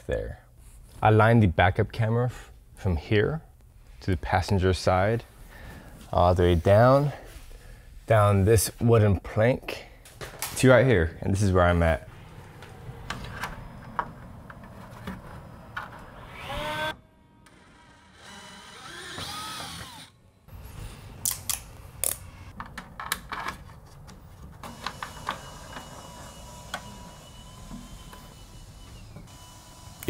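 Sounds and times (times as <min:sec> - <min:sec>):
cordless drill whining: 0:15.9 - 0:20.2, 0:24.7 - 0:30.0.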